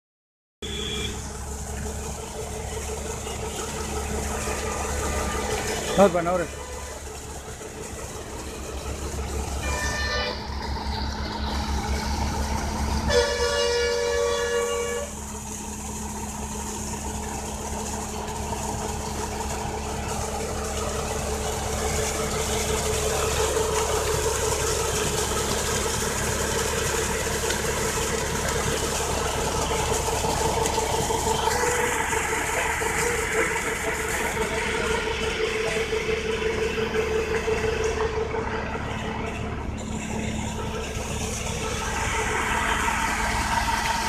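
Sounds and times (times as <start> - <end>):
horn sounding: 0.6 - 1.4, 3.0 - 7.3, 9.5 - 10.6, 13.0 - 15.3, 28.8 - 39.3
tractor diesel engine running: 0.6 - 44.0
water gushing from pipe: 0.6 - 44.0.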